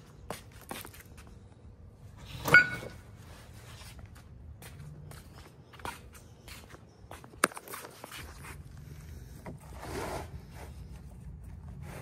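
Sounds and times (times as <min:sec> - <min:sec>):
footsteps on stone paving: 0:00.0 - 0:01.4, 0:03.8 - 0:08.6.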